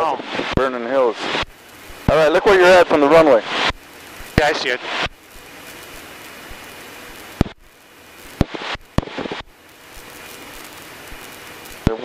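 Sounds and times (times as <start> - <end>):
radio intercom hiss: 0.0 - 12.0
short clipped radio clicks: 8.4 - 9.5.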